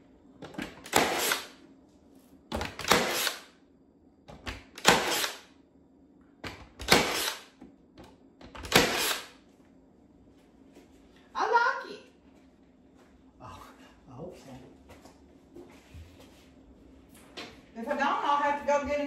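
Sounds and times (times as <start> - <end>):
nailer firing sharp cracks: 0.8 - 1.6, 2.5 - 3.6, 4.6 - 5.5, 6.4 - 7.6, 8.5 - 9.4.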